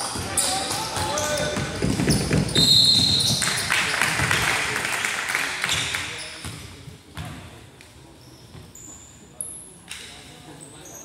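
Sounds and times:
crowd voices echoing: 0.0 - 5.9
basketball bouncing on wooden floor: 1.0 - 4.4.

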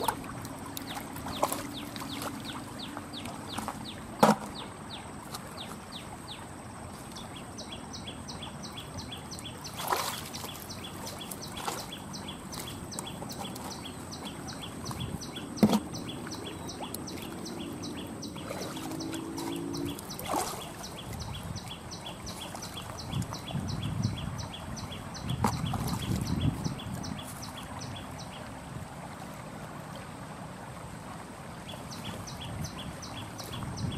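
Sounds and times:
hands splashing in stream: 0.0 - 5.9, 9.6 - 21.4.

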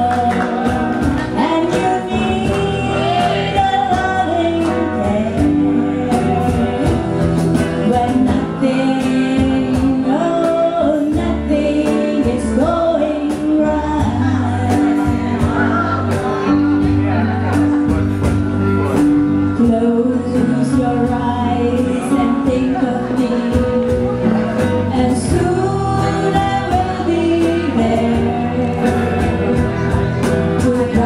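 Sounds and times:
backing singers: 0.0 - 18.0
cajon beating rhythm: 0.0 - 31.0
guitar: 0.0 - 31.0
stage piano: 0.0 - 31.0
woman singing lead: 0.0 - 31.0.

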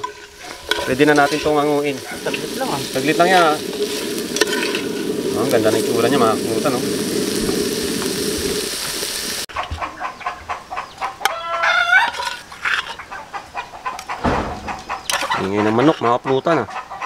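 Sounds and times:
food sizzling in pot: 0.0 - 9.5
chickens clucking: 0.0 - 17.0.

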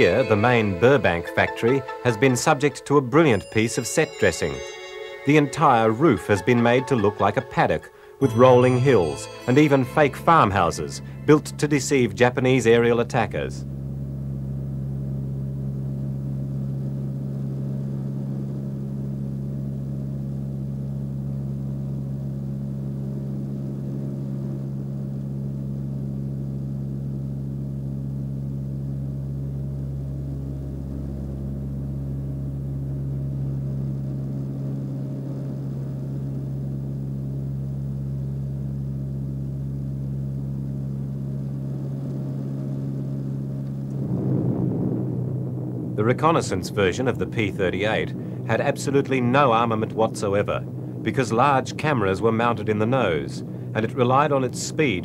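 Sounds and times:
low drone of fixed tones: 0.0 - 20.1, 28.1 - 55.0
low rumble: 38.5 - 53.8.

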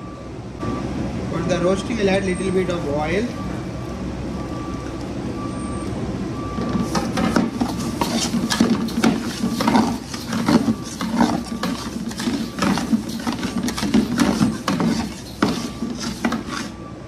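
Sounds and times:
steady background noise: 0.0 - 17.0
metal spatula scraping pot: 6.7 - 16.8.

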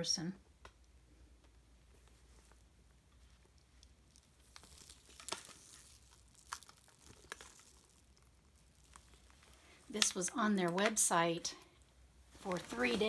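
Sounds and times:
soft rustles of handbag: 12.3 - 13.0.

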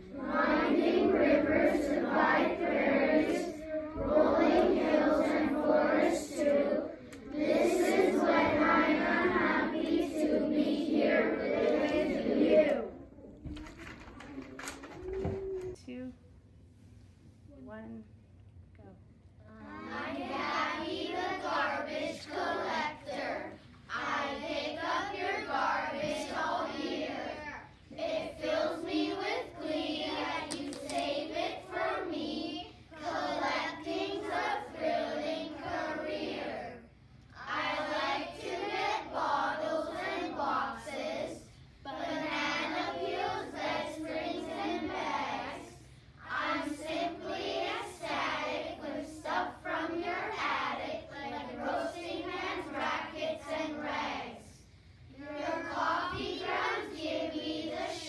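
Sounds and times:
children reciting in unison: 0.0 - 13.1, 19.5 - 58.0.

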